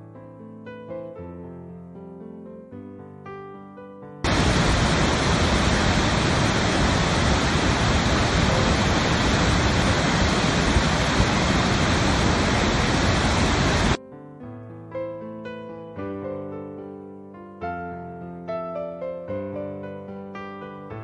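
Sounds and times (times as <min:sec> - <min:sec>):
waterfall crashing: 0:04.3 - 0:14.0.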